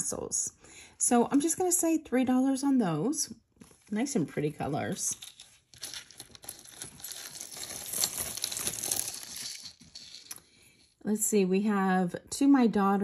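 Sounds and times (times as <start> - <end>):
packaging crinkling: 5.2 - 10.4.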